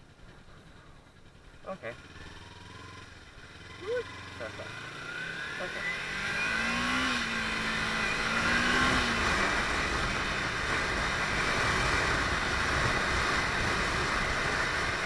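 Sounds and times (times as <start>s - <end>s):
motorcycle engine accelerating: 0.0s - 15.0s
wind noise: 7.4s - 15.0s.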